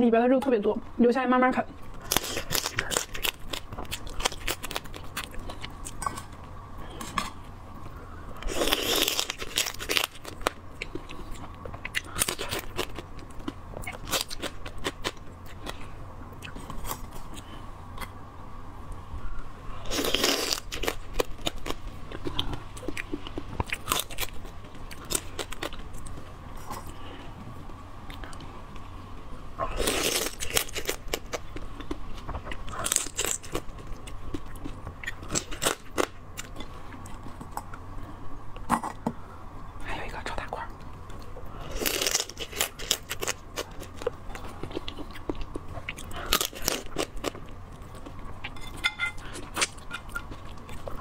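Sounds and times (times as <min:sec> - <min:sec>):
crunching crab shell: 0:02.0 - 0:06.1, 0:08.4 - 0:11.1.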